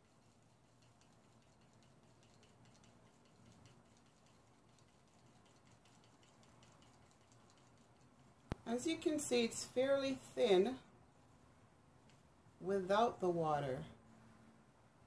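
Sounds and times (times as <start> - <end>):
stick clicking stirring paint in cup: 0.0 - 8.8, 12.0 - 12.3.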